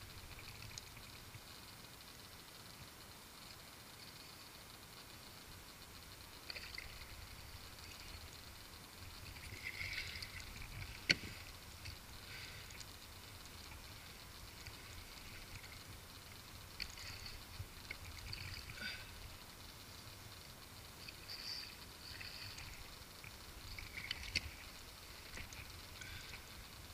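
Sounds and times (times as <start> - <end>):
water splashing and sloshing: 6.3 - 26.9.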